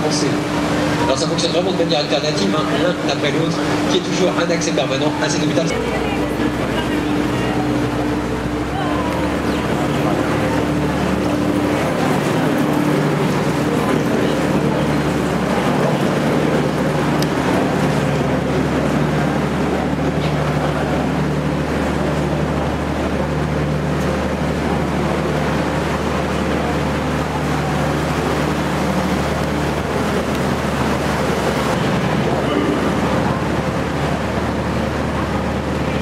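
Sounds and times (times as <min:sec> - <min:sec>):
boat engine low drone: 0:00.0 - 0:36.0.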